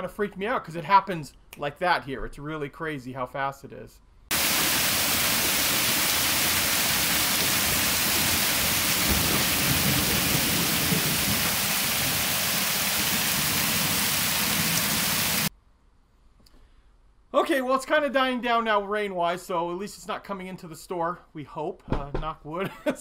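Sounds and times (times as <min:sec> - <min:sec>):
heavy rain on pavement and cars: 0:04.3 - 0:15.5.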